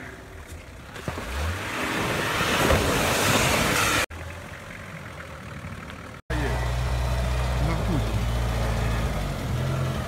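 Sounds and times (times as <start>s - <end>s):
vehicle engine: 0.0s - 10.0s
tyres splashing through water: 0.8s - 4.2s.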